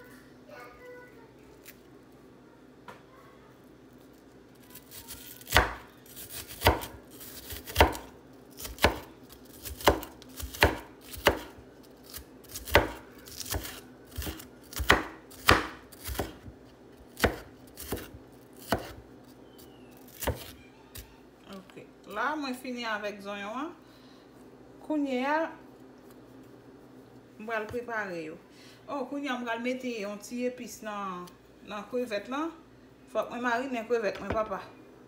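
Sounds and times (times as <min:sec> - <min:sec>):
knife chopping on wooden board: 0:05.4 - 0:11.5, 0:12.1 - 0:16.5, 0:17.1 - 0:19.0.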